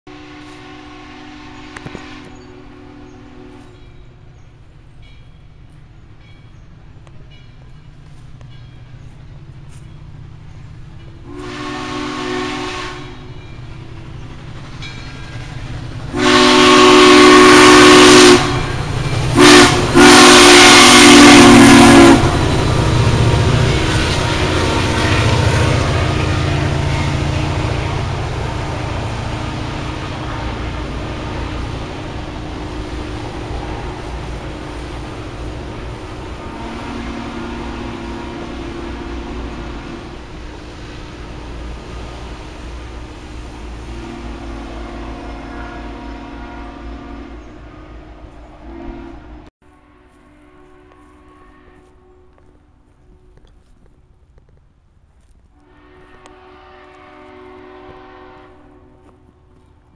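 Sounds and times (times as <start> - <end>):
steam locomotive whistle: 0.1 - 3.8, 11.2 - 13.5, 16.1 - 34.9, 35.8 - 40.3, 43.8 - 52.4, 55.6 - 59.1
train rumbling: 0.1 - 59.9.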